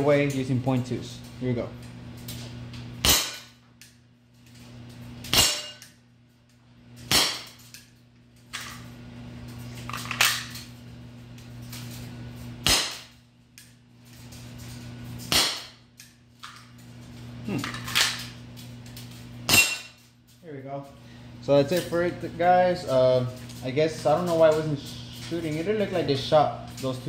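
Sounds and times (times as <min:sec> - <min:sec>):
steady low hum: 0:00.0 - 0:27.0
airsoft pistol shots popping: 0:12.6 - 0:13.1, 0:15.3 - 0:15.8.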